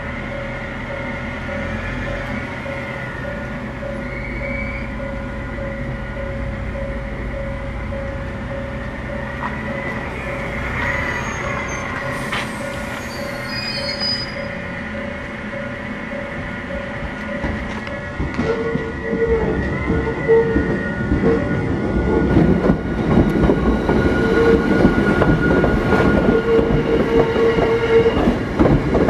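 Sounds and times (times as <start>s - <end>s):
train running rumble: 0.0s - 29.0s
railcar wheels squealing: 1.5s - 6.4s, 9.0s - 15.1s, 16.7s - 29.0s
pulsing beep: 2.9s - 8.1s.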